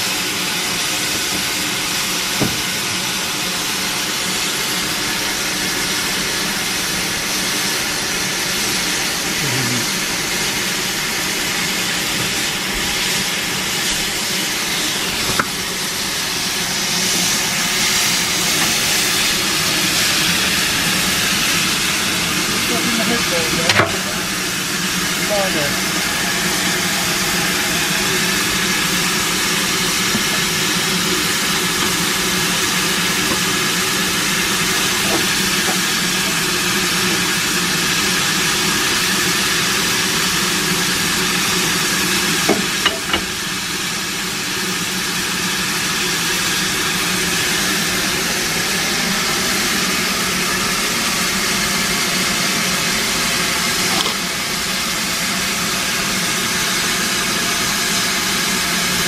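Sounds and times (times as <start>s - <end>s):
loud hiss of escaping steam: 0.0s - 59.0s.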